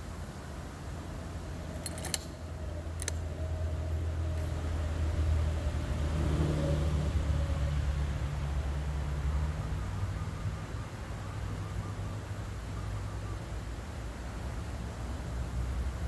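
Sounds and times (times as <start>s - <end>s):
light metallic clicks: 1.7s - 3.3s.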